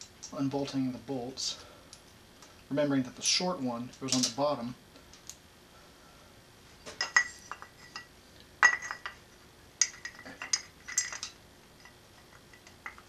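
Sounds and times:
metal bolts clinking: 7.0 - 9.2, 9.8 - 13.0.

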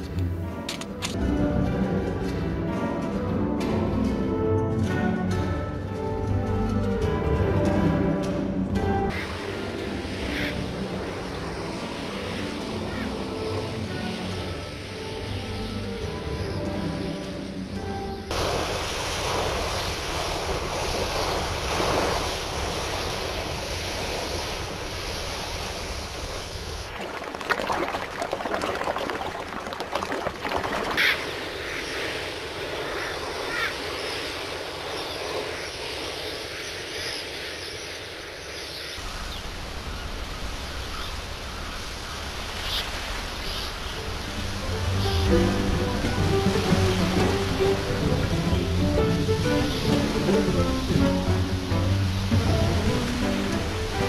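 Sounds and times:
sea waves rushing: 6.9 - 54.0
gull calls: 30.7 - 31.3, 33.0 - 33.8.

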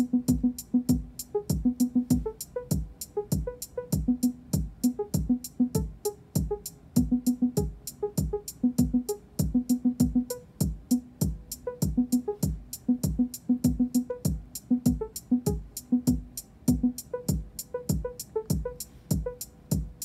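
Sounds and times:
fast steady ticking: 0.0 - 20.0
kick drum thumping: 0.3 - 20.0.

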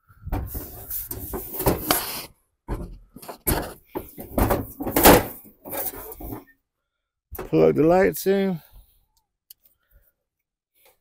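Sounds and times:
mower hood clunking and rattling: 0.2 - 2.0, 2.7 - 6.4.

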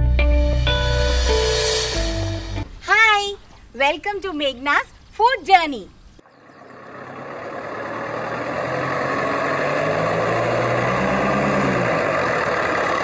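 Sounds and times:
truck engine approaching: 6.2 - 13.0.

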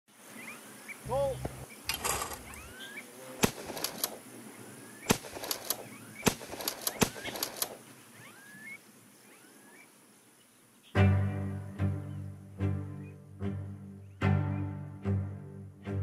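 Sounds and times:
birds chirping: 0.1 - 15.3
sharp cracks: 3.4 - 4.4, 5.0 - 7.9.

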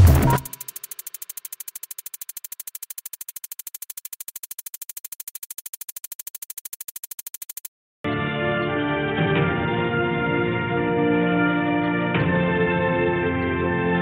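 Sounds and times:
rapid even clicking: 0.0 - 7.7.

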